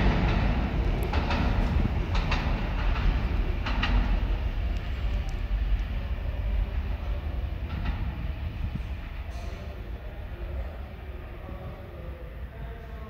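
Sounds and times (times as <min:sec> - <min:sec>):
subway train rumbling: 0:00.0 - 0:13.0.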